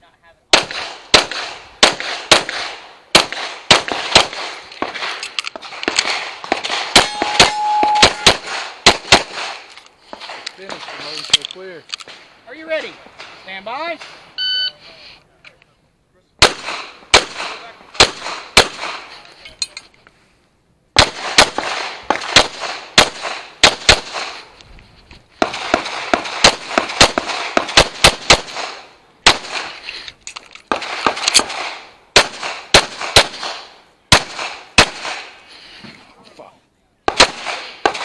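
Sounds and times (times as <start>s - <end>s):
pistol shots: 0.5s - 11.2s, 16.4s - 19.1s, 21.0s - 24.5s, 25.4s - 29.8s, 30.7s - 35.4s, 37.1s - 38.0s.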